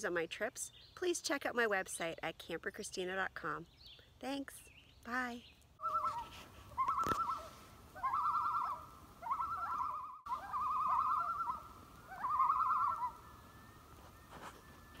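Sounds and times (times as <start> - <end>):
bird trilled call: 5.8 - 15.0
faint steady tone: 10.7 - 15.0.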